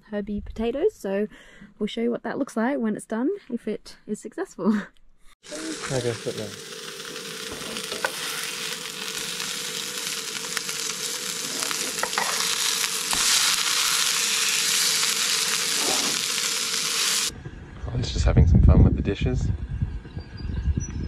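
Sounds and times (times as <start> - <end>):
fish sizzling in oil: 5.4 - 17.3.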